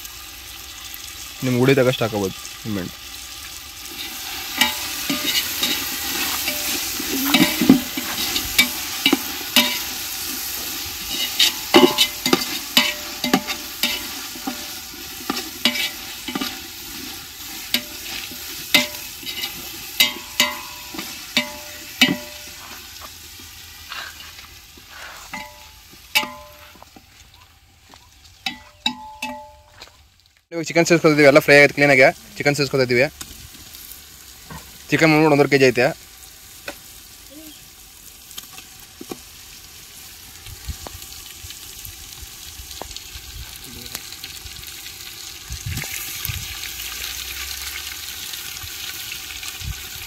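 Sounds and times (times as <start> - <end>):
spices sizzling in a pot: 0.0 - 50.0
ladle scraping and knocking pot: 3.9 - 10.0, 10.6 - 22.7, 25.3 - 26.7, 28.4 - 29.6.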